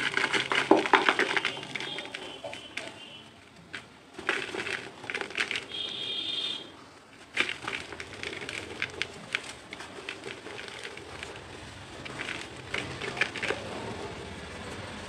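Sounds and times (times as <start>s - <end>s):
cement crumbling in hand: 0.0s - 2.7s, 7.2s - 13.7s
crumbs dropping into plastic bowl: 0.0s - 3.1s.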